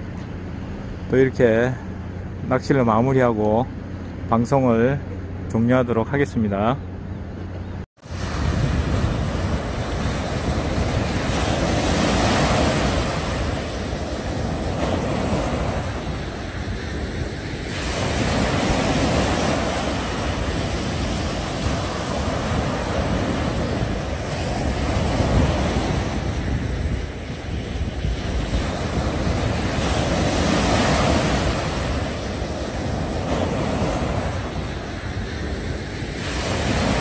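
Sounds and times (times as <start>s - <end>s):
small waves breaking on beach: 8.0s - 37.0s
wind buffeting microphone: 8.0s - 37.0s.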